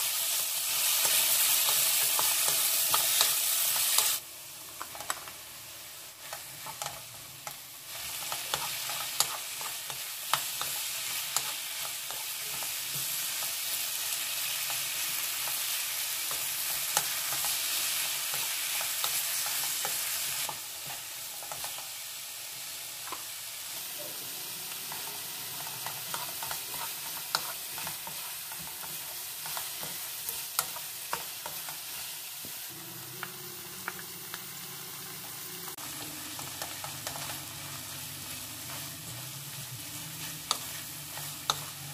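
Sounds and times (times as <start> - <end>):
food sizzling in oil: 0.0 - 41.9
wooden spoon scraping wok: 23.8 - 33.3, 35.2 - 41.9.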